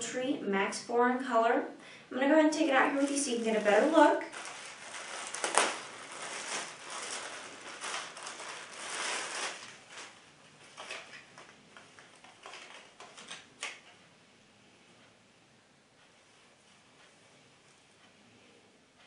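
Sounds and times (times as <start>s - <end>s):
plastic bag crinkling: 2.8s - 13.8s.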